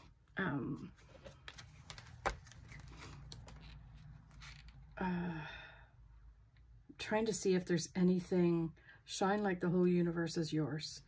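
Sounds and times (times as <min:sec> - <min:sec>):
paper rustling: 0:01.0 - 0:04.8.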